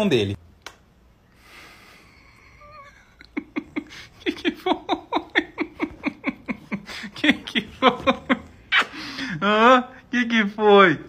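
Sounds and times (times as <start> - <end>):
person laughing: 2.0 - 9.6.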